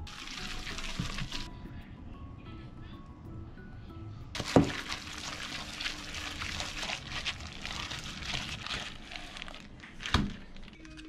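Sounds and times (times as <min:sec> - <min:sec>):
wet squelching and slapping: 0:00.1 - 0:01.5, 0:04.4 - 0:10.3.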